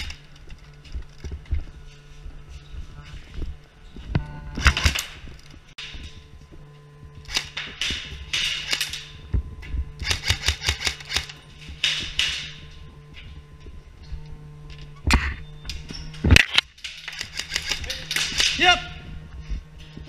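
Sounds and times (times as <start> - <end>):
steady low hum: 0.0 - 20.0
airsoft guns firing bursts: 4.6 - 5.2, 7.2 - 9.2, 10.0 - 12.7, 16.8 - 19.0.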